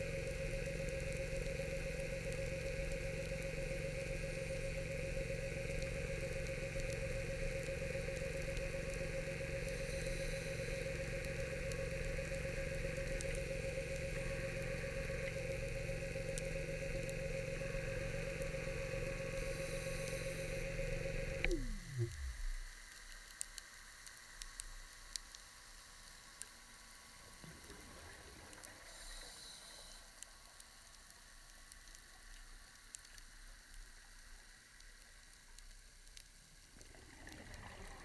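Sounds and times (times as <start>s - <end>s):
underwater scooter motor humming: 0.0s - 22.8s.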